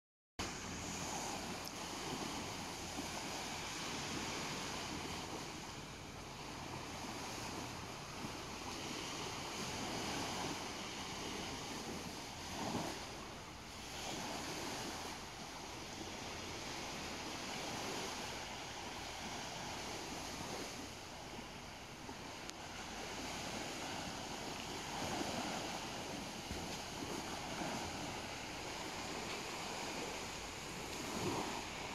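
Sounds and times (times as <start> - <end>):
small waves washing onto shore: 0.4 - 31.9
wind: 0.4 - 31.9.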